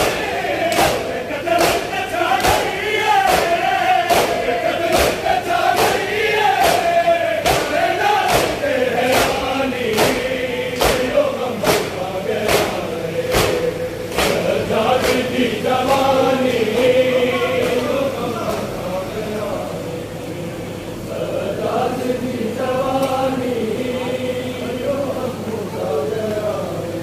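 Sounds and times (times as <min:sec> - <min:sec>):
rhythmic chest slaps: 0:00.0 - 0:18.8, 0:22.9 - 0:23.3
crowd of men chanting: 0:00.0 - 0:19.8, 0:21.1 - 0:27.0.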